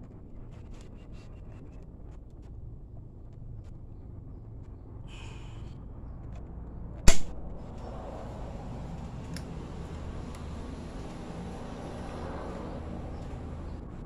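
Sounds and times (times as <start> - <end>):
steady low hum: 0.0 - 14.0
sharp metal click: 7.1 - 7.4.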